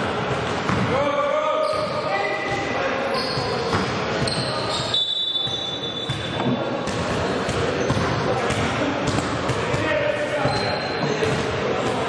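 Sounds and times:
echoing players' voices: 0.0 - 12.0
basketball bouncing on court: 0.6 - 0.9, 6.0 - 12.0.

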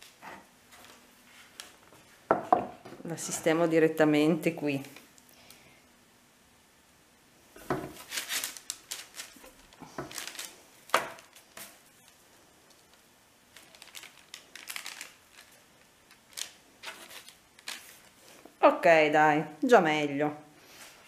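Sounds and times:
baking parchment crinkling: 7.6 - 18.6.

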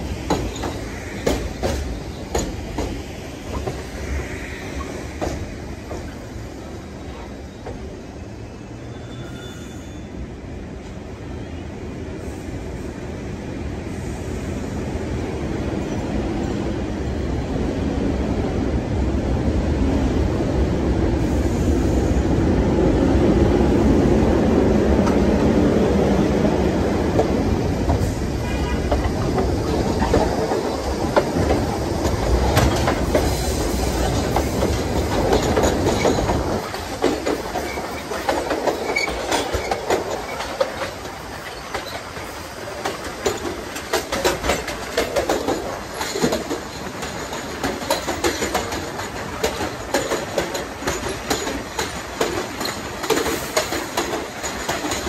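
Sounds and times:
wheels clacking over rail joints: 0.0 - 4.2, 26.4 - 55.0
train rumbling on elevated track: 0.0 - 55.0
faint wheel squeal: 8.5 - 10.2.

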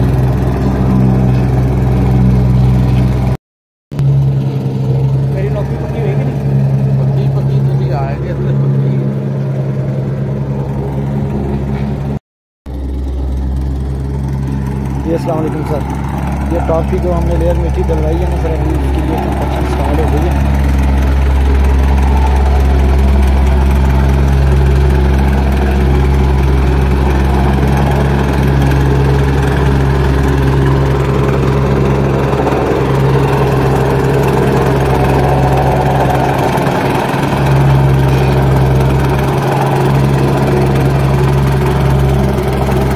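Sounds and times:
plate compactor engine running: 0.0 - 42.9.

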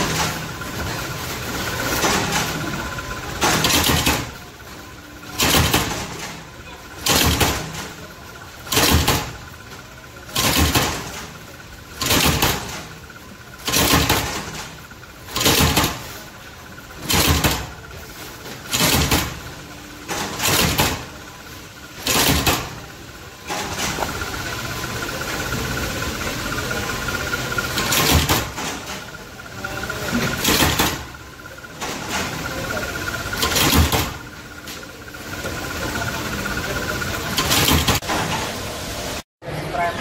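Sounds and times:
power press stamping: 0.0 - 38.7
machine running with thin whine: 0.0 - 40.0.

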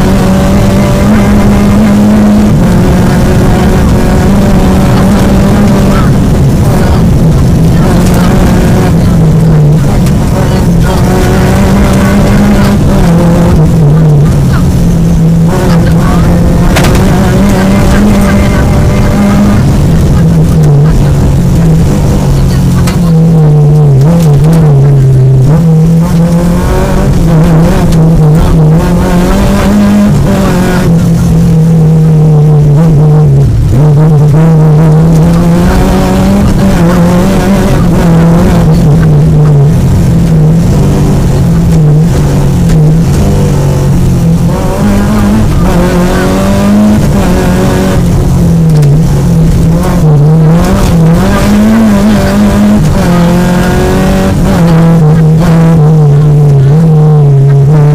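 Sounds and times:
car engine revving hard: 0.0 - 57.9.

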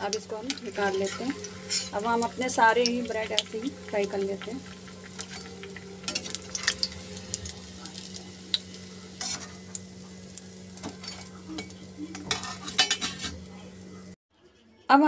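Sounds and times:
food sizzling in hot oil: 0.0 - 14.2
spatula scraping against pan: 0.8 - 2.2, 9.2 - 9.7, 10.8 - 13.5.

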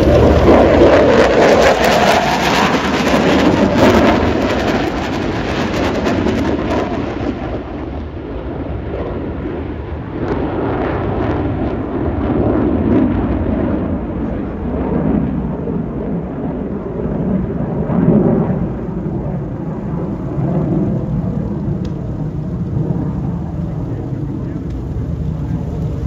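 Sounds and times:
jet engine rumble overhead: 0.0 - 26.0.

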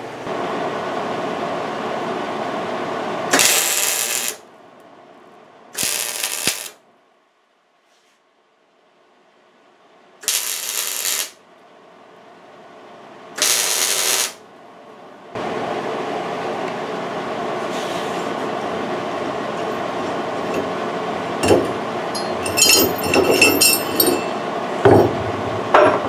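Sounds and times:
arc welding crackle: 3.3 - 4.4, 5.8 - 6.8, 10.2 - 11.4, 13.4 - 14.4
metal clinks: 21.4 - 24.6.

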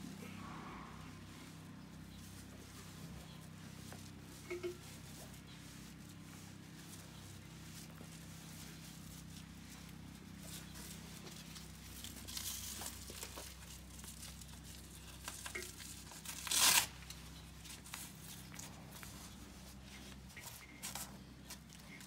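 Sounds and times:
velcro strap ripping: 16.2 - 17.2.

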